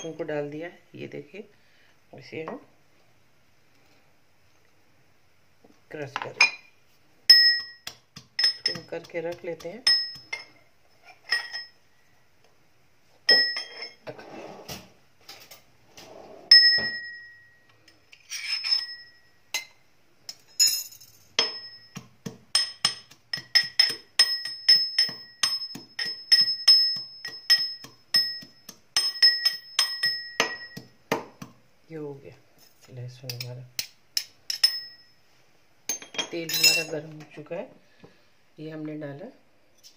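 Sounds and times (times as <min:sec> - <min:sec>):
spoon pounding in steel cup: 0:21.4 - 0:31.6.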